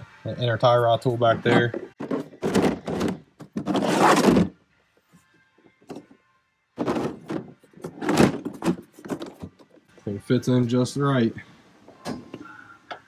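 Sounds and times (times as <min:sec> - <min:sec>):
tools rattling and knocking: 0:06.8 - 0:09.8.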